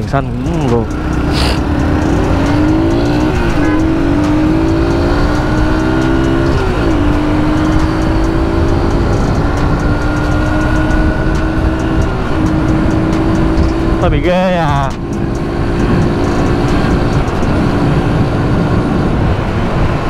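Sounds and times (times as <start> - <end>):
motorcycle engine accelerating: 0.0 - 20.0
wind on microphone: 15.0 - 20.0.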